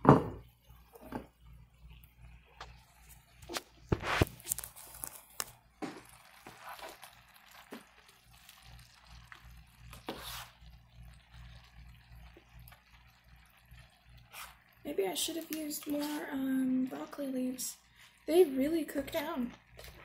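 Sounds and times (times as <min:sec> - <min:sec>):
food sizzling in a pan: 0:00.4 - 0:20.0
spatula stirring food: 0:00.7 - 0:17.2.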